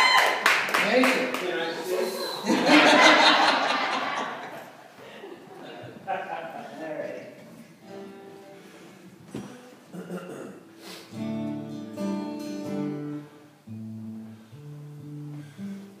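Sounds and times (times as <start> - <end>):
acoustic guitar strumming: 7.8 - 16.0.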